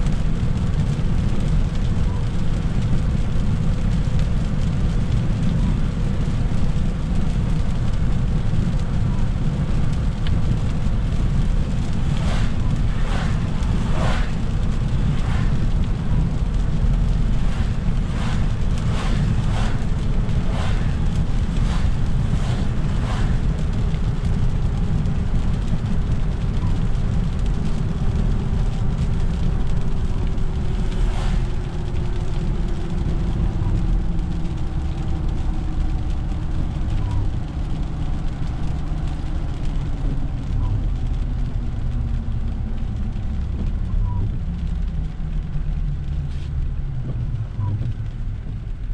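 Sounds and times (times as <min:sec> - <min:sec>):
road and engine rumble: 0:00.0 - 0:48.9
tyre hiss on wet road: 0:09.6 - 0:25.4, 0:29.4 - 0:34.7, 0:46.2 - 0:46.6
short swishes: 0:12.0 - 0:15.7, 0:17.3 - 0:23.5.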